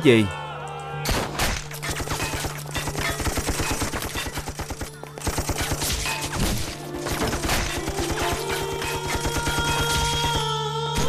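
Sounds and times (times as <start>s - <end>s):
rapid gunfire: 1.1s - 10.5s.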